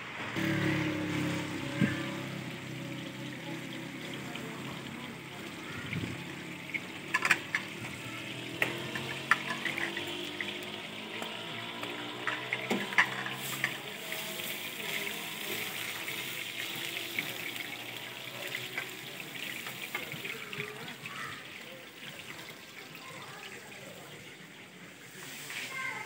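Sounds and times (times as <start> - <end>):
food deep-frying in oil: 0.0 - 26.0.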